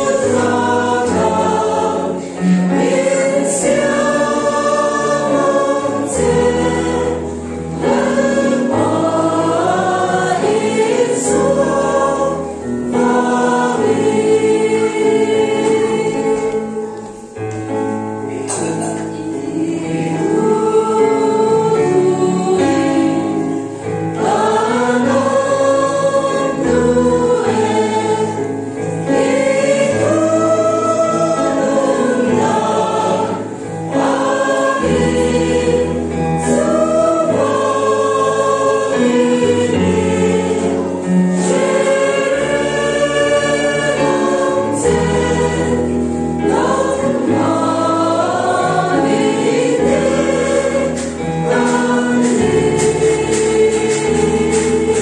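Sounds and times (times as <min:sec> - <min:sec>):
choir singing a hymn: 0:00.0 - 0:55.0
instrumental accompaniment with bass notes: 0:24.2 - 0:55.0.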